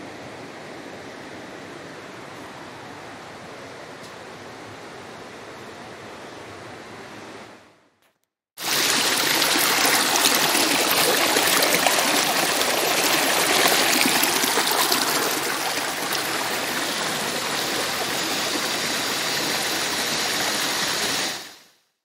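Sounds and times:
stream rushing over rocks: 0:08.6 - 0:21.6.

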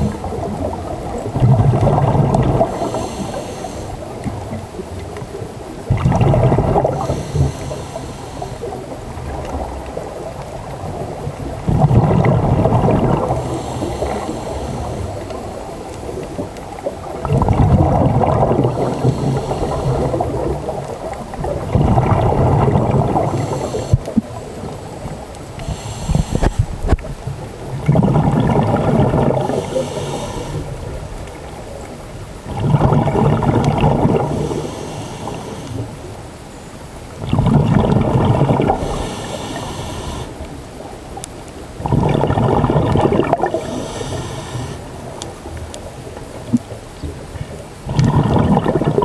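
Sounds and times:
exhaled bubbles rushing: 0:00.0 - 0:31.6, 0:32.4 - 0:36.0, 0:37.2 - 0:40.2, 0:41.8 - 0:45.6, 0:46.4 - 0:49.0
regulator hiss on inhale: 0:02.6 - 0:04.3, 0:06.8 - 0:09.0, 0:13.3 - 0:16.2, 0:18.6 - 0:20.5, 0:23.2 - 0:24.2, 0:25.6 - 0:27.1, 0:29.4 - 0:31.4, 0:34.2 - 0:36.1, 0:38.7 - 0:40.6, 0:43.4 - 0:45.2.

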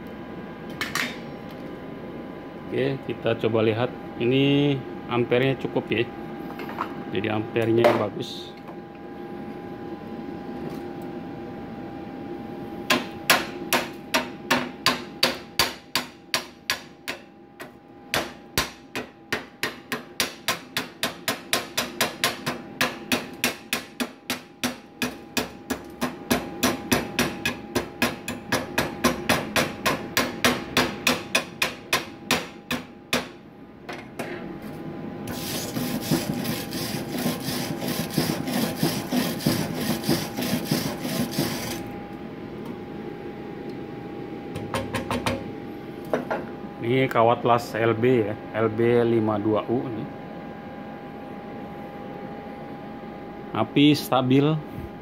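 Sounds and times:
chipping hammer striking weld: 0:18.1 - 0:33.4
wire brush scrubbing metal: 0:35.3 - 0:41.8.

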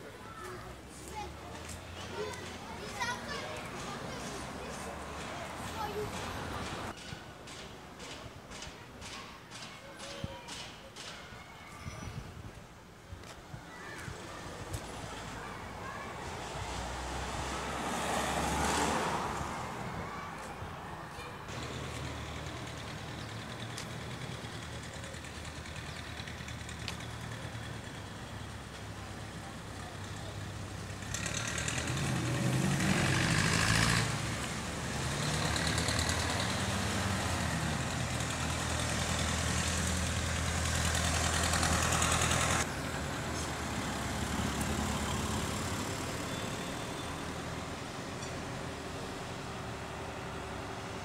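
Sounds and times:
vehicle passing: 0:00.7 - 0:06.9, 0:15.0 - 0:24.7, 0:25.4 - 0:48.0
vehicle engine running: 0:21.5 - 0:34.3, 0:34.9 - 0:46.4.

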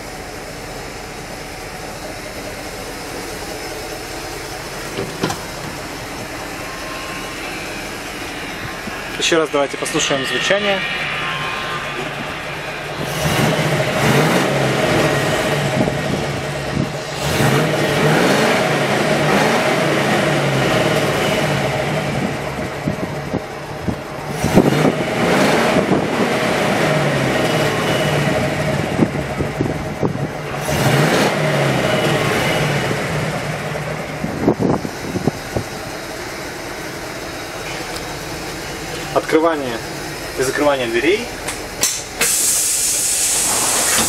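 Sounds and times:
bus engine idling and revving: 0:00.0 - 0:44.0.

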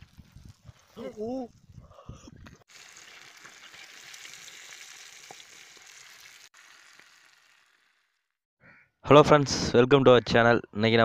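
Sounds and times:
fish sizzling in oil: 0:02.7 - 0:08.3.

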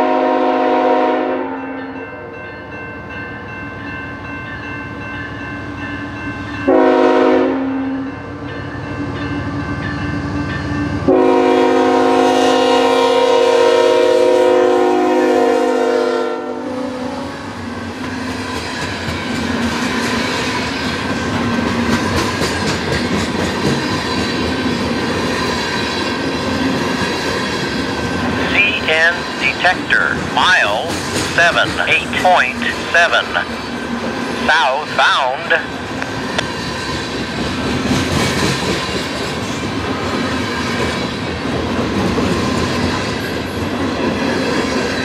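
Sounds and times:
locomotive air horn blasts: 0:00.0 - 0:01.6, 0:06.7 - 0:08.0, 0:11.1 - 0:17.1
diesel locomotive passing: 0:00.0 - 0:45.0
train wheels clickety-clack: 0:17.9 - 0:28.2, 0:30.2 - 0:32.2, 0:35.9 - 0:45.0.

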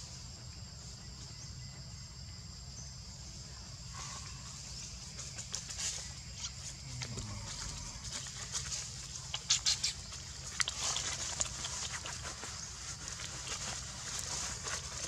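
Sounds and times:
insects droning: 0:00.0 - 0:15.0
footsteps on dry leaves: 0:07.2 - 0:15.0.

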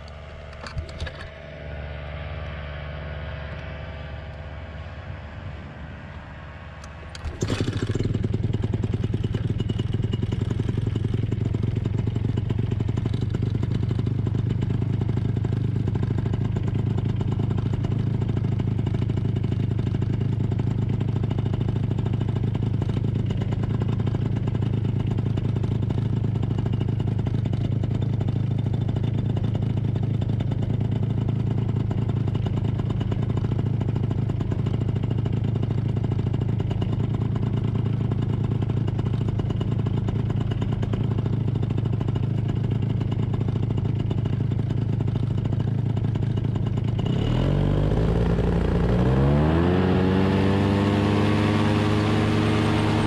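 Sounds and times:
two-stroke engine idling: 0:00.0 - 0:53.0.

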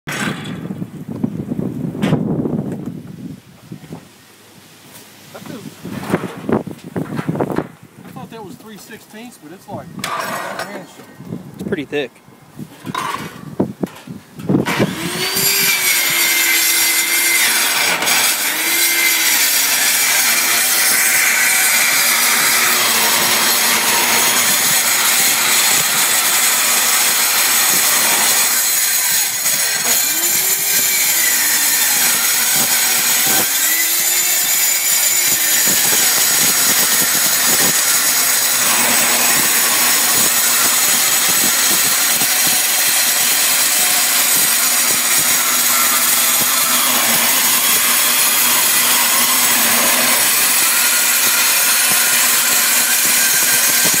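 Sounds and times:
circular saw cutting steel: 0:14.6 - 0:54.0.

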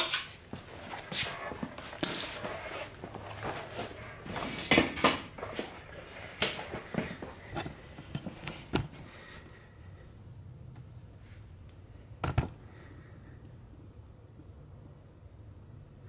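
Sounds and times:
metal tools clinking and knocking: 0:01.8 - 0:02.4.

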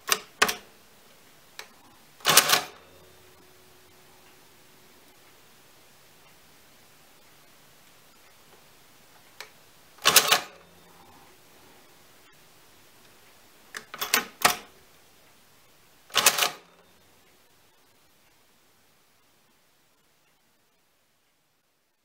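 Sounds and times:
calculator mechanical clatter: 0:02.2 - 0:02.8, 0:16.1 - 0:16.6.

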